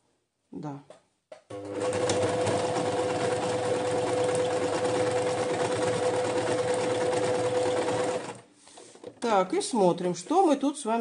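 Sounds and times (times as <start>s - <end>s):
sewing machine running: 1.5s - 8.4s.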